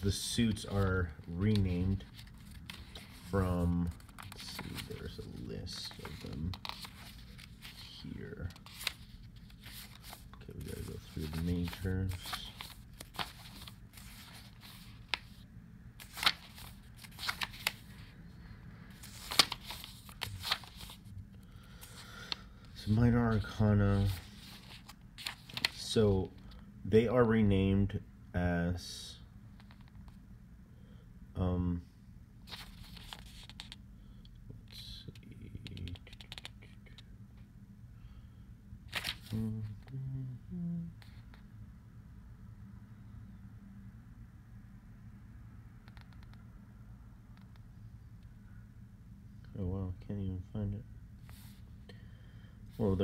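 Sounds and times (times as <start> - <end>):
paper pages rustling: 0.1 - 15.4, 16.0 - 18.1, 18.9 - 21.1, 21.8 - 26.0, 32.5 - 33.8, 38.9 - 39.5
book pages flicking: 19.0 - 20.9
woman humming: 39.5 - 41.0.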